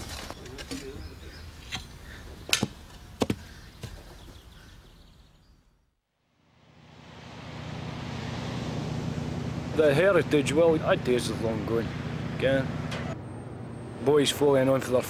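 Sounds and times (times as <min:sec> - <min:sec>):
low hum with noisy wash: 0:06.5 - 0:15.0.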